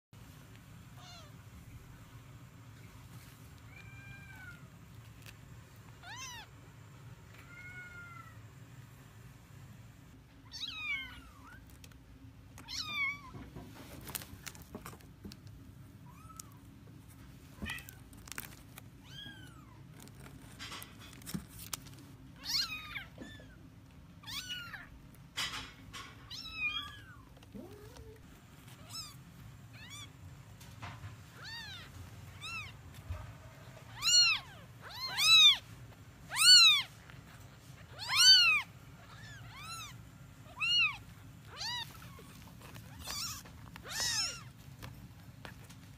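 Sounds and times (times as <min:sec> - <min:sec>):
kittens mewing: 0:36.3 - 0:45.7.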